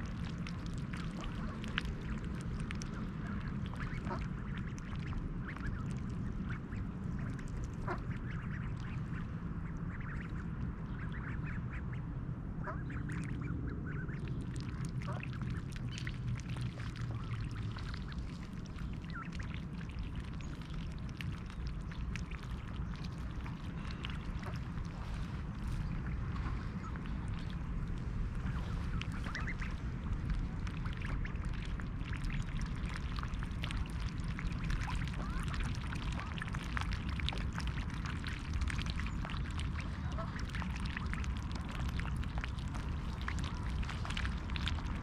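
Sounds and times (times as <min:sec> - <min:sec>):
low steady rumble: 0:00.0 - 0:45.0
ducks quacking: 0:28.4 - 0:29.8, 0:39.8 - 0:40.7.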